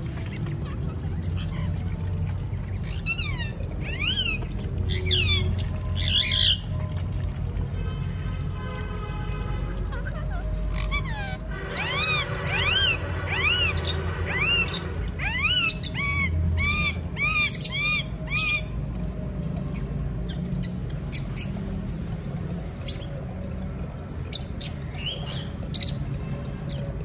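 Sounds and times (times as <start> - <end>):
parakeets squawking: 0.2 - 6.8, 9.8 - 18.7
parakeet chirps: 10.0 - 18.7.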